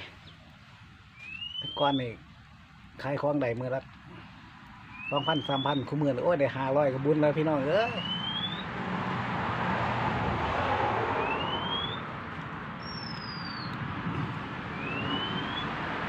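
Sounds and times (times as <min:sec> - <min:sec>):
bird whistling: 0:01.2 - 0:02.2, 0:04.9 - 0:06.0, 0:07.8 - 0:08.7, 0:11.2 - 0:12.1, 0:12.8 - 0:13.8, 0:14.7 - 0:15.8
steady rushing noise: 0:05.8 - 0:16.0.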